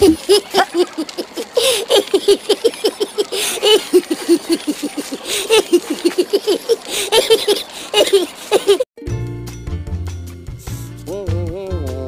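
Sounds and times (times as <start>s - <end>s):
cartoon voices giggling: 0.0s - 8.8s.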